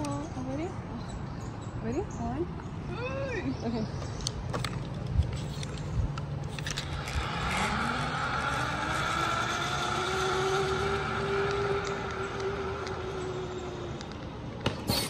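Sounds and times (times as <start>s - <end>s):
zipline pulley whine: 5.3s - 15.0s.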